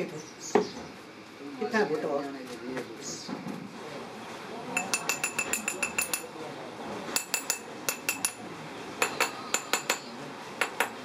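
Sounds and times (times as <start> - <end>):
metal tool tapping metal: 4.8 - 6.3, 7.2 - 8.4.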